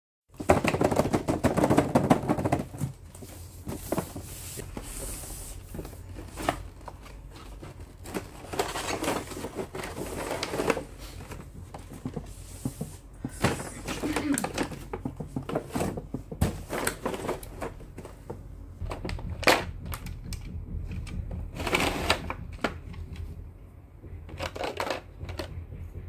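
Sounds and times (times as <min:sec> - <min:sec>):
packaging crinkling and crackling: 0:05.7 - 0:11.9.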